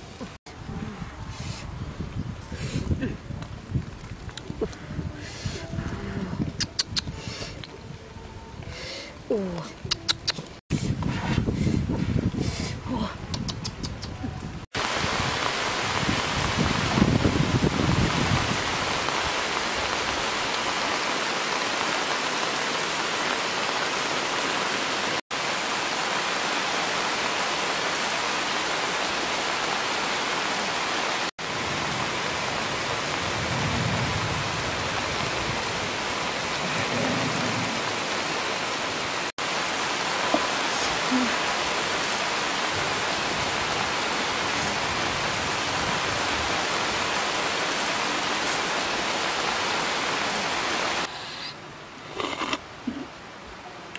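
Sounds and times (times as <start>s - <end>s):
heavy rain: 0.0s - 11.0s, 14.4s - 53.9s
thunder rumbles: 31.6s - 38.3s.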